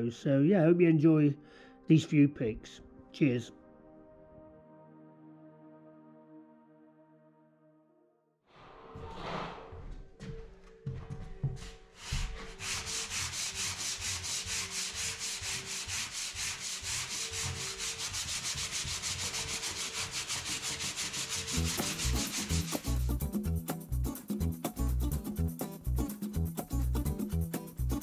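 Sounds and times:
music: 0.0s - 28.0s
hand sanding plasterboard: 11.6s - 23.3s.

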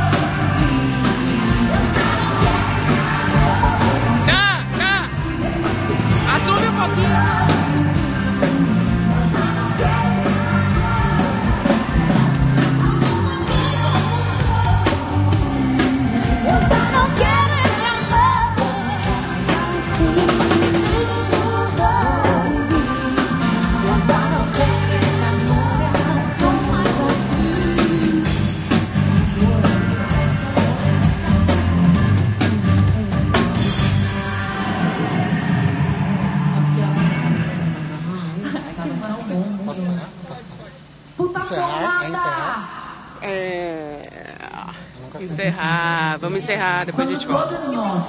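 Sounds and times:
women singing: 0.0s - 4.3s, 5.1s - 6.3s, 6.9s - 35.5s
drum kit beat: 0.0s - 36.7s.

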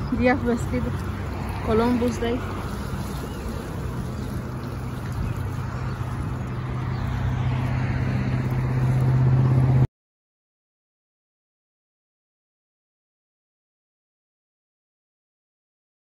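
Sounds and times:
low engine hum: 0.0s - 9.9s
outdoor noise: 0.0s - 9.9s.

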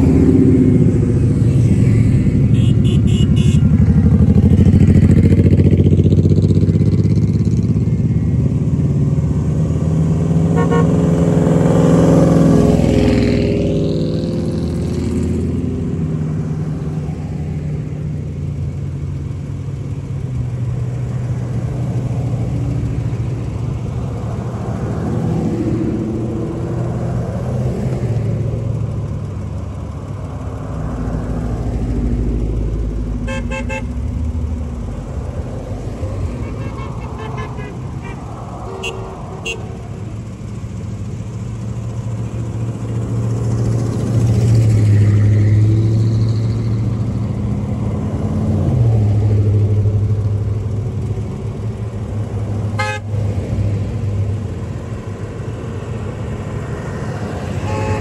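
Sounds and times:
vehicles passing on highway: 0.0s - 58.0s
car horn toots: 2.5s - 3.8s, 10.5s - 11.0s, 33.2s - 34.0s, 36.3s - 39.8s, 52.8s - 53.1s, 57.6s - 58.0s.

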